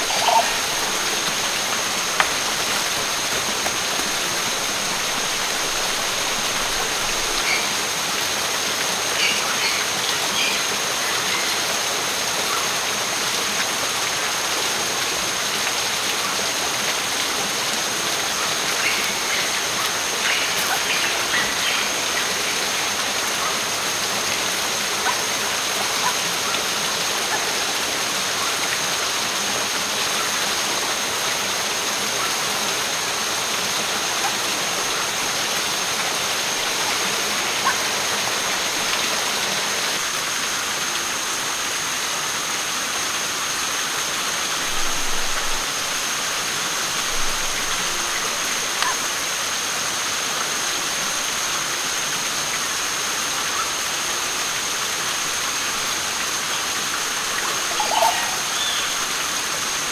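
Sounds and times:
campfire crackling: 0.0s - 7.4s
stream rushing over rocks: 0.0s - 59.9s.

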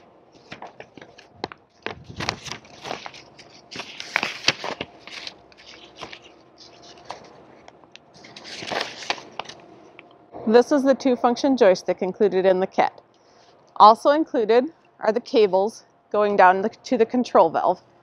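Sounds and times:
paper sheets rustling: 0.3s - 9.6s.

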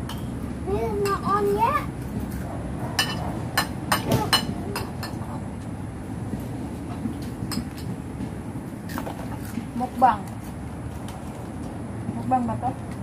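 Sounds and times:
utensils clinking against plates: 3.0s - 5.2s.

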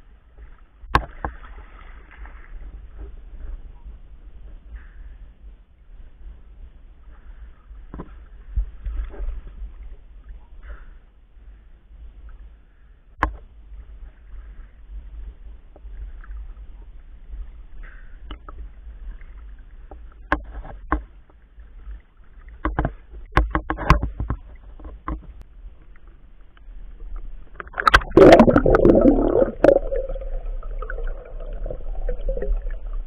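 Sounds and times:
water sloshing around swimmer: 0.3s - 3.8s
sharp clicks and knocks: 22.6s - 25.4s.

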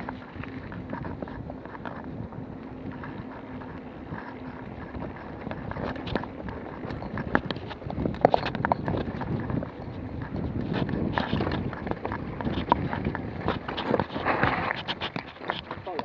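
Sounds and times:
bike parts rattling: 0.0s - 16.0s
bike tyres crunching on dirt: 0.0s - 16.0s
wind buffeting microphone: 0.0s - 16.0s.

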